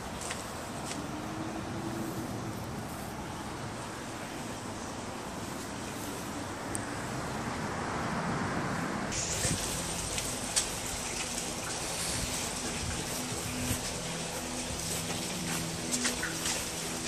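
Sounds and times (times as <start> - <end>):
high hiss: 9.1 - 10.6.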